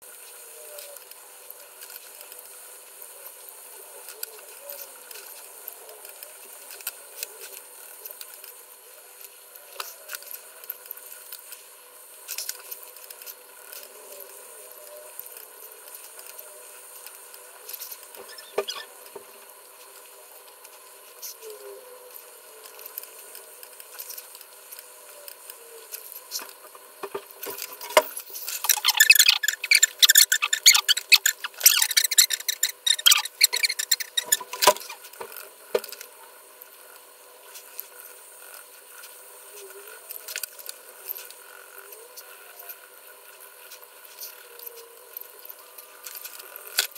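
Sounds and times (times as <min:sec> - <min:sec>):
colored pencil scratching on paper: 0:27.5 - 0:35.0.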